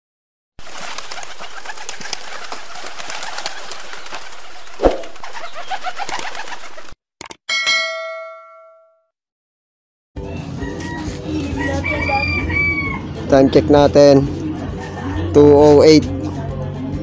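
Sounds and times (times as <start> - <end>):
pigeons cooing: 1.2 - 7.0
bell chime: 7.5 - 9.0.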